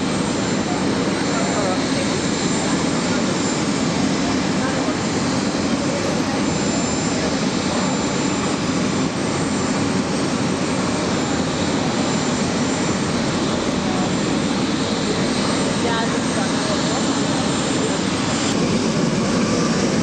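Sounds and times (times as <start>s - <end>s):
aircraft engines running: 0.0s - 20.0s.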